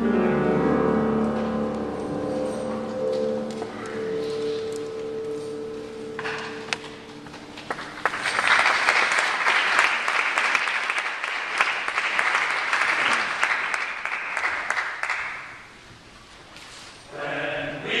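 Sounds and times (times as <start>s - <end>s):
audience applauding: 6.8s - 15.7s.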